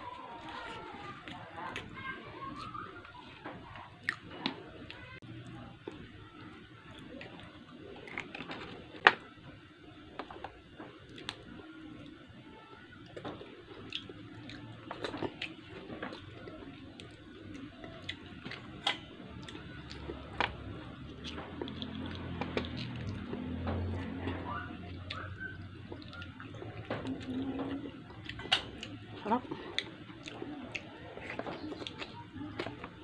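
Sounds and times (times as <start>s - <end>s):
wet chewing and mouth smacks: 21.0s - 32.8s.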